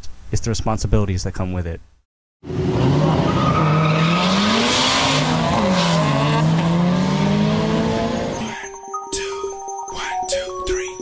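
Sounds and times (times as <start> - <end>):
car engine revving hard: 2.4 - 8.5.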